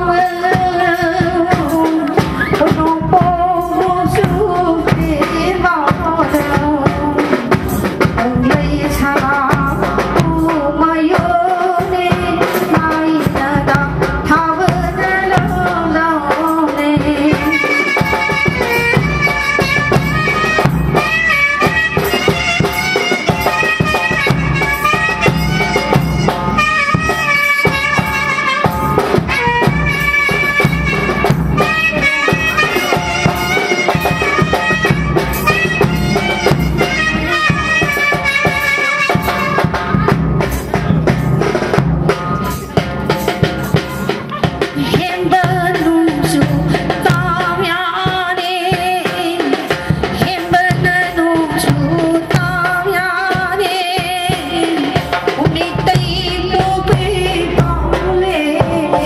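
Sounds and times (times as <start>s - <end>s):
woman singing through a microphone: 0.0s - 20.6s, 29.3s - 37.9s, 44.2s - 59.0s
rhythmic percussion: 0.0s - 59.0s
bowed fiddle melody: 17.4s - 40.9s.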